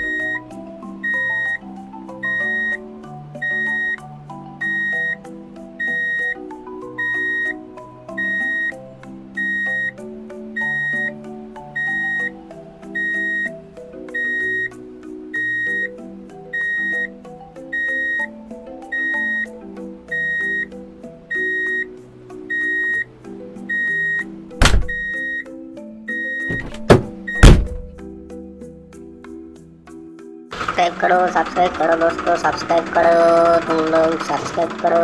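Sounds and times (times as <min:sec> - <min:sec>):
electronic tune with high beep: 0:00.0 - 0:04.0, 0:04.6 - 0:05.2, 0:05.8 - 0:07.6, 0:08.2 - 0:08.8, 0:09.4 - 0:10.0, 0:10.6 - 0:13.5, 0:14.1 - 0:15.9, 0:16.5 - 0:18.3, 0:18.9 - 0:21.9.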